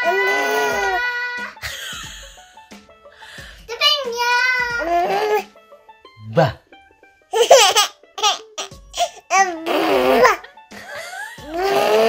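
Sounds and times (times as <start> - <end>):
baby babbling and laughing: 0.0 - 1.6, 4.6 - 5.5, 7.4 - 10.5.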